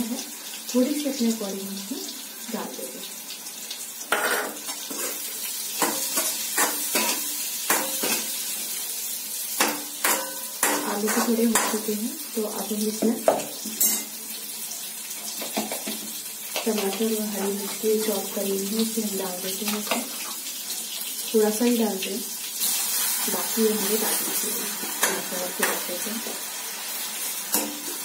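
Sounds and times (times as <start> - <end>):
frying sizzle: 0.0 - 28.0
metal spoon scraping steel pan: 4.1 - 5.2.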